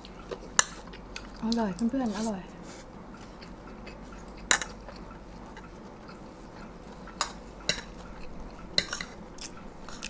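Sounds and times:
cutlery clinking against a plate: 0:04.2 - 0:10.0.

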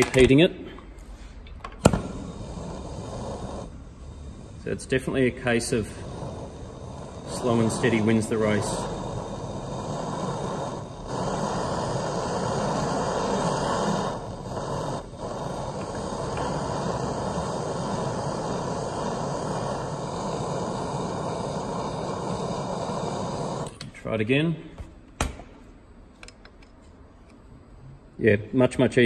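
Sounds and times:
blowtorch flame burning: 0:01.8 - 0:23.9.

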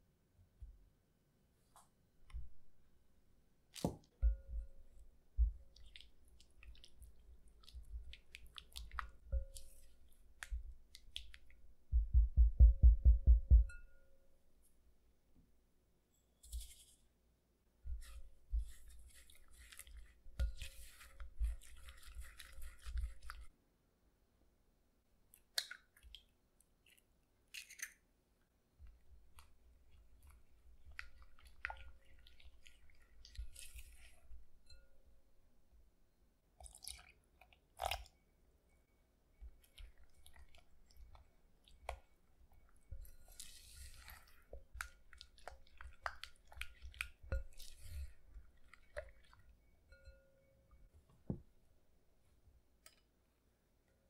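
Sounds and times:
wet squishy stirring of batter: 0:01.6 - 0:12.6, 0:16.2 - 0:23.6, 0:25.3 - 0:50.2.

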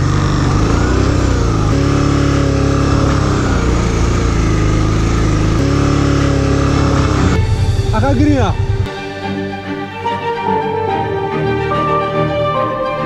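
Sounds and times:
motorcycle engine running: 0:00.0 - 0:09.3.

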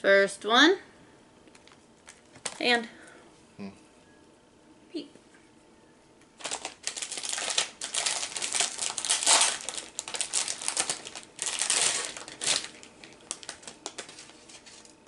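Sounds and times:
plastic wrapping crinkling: 0:01.5 - 0:02.6, 0:06.4 - 0:15.0.

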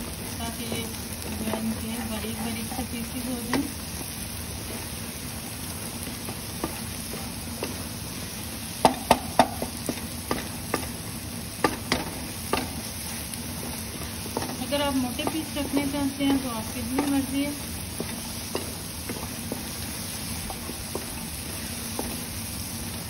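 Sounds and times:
eggs sizzling in oil: 0:00.0 - 0:23.0
spatula scraping and tapping pan: 0:06.0 - 0:07.8, 0:13.6 - 0:17.4, 0:18.0 - 0:19.8.

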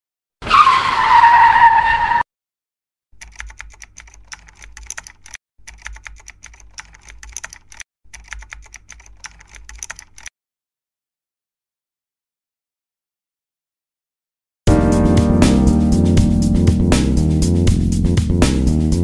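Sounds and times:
loud screech: 0:00.4 - 0:02.3
rapid irregular clicking: 0:03.2 - 0:10.3.

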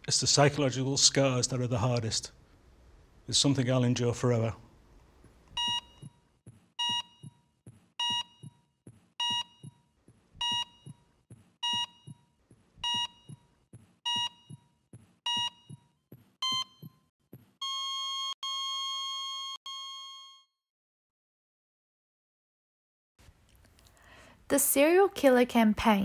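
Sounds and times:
soft low heartbeat thumps: 0:05.2 - 0:17.6
heart monitor beeps: 0:05.5 - 0:06.2, 0:06.8 - 0:20.4.

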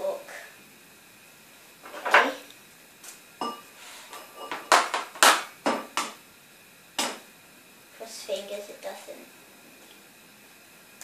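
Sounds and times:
bowls and utensils clattering: 0:03.4 - 0:05.1.

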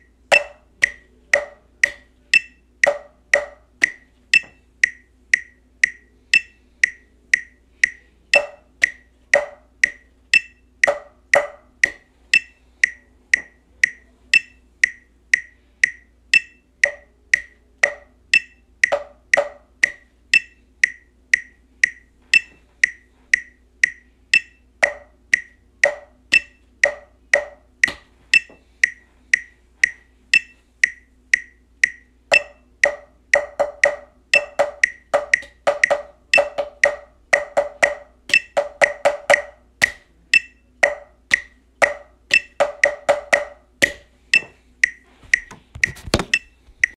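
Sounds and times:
metronome clicking: 0:00.0 - 0:46.9
drumstick strokes on bass drum: 0:43.9 - 0:46.9.

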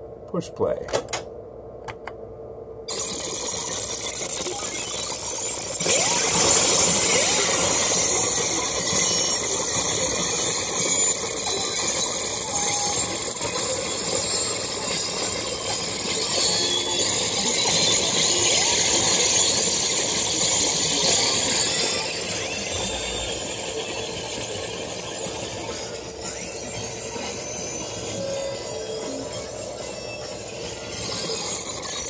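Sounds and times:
synthesizer dense glitchy tone: 0:02.9 - 0:07.9.

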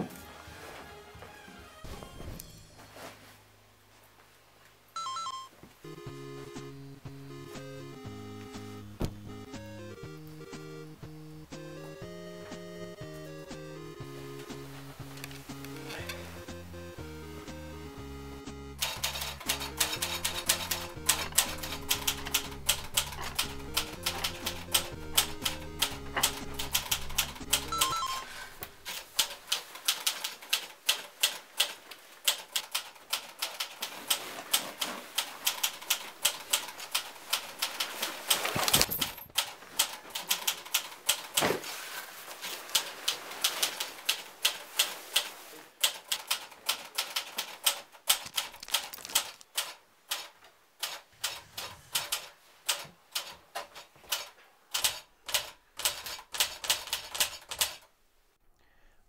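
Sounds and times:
wall clock ticking: 0:05.8 - 0:38.5, 0:39.4 - 0:41.4
books and pens clattering onto carpet: 0:38.4 - 0:39.4, 0:48.2 - 0:49.5.

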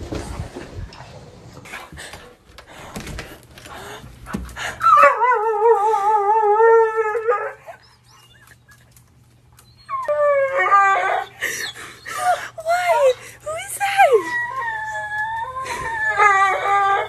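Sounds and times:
dog howling whine: 0:09.6 - 0:13.2, 0:14.0 - 0:17.0.

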